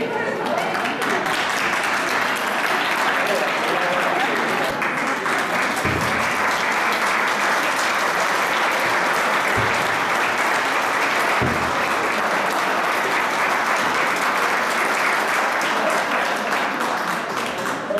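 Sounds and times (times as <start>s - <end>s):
crowd clapping: 0.0s - 17.9s.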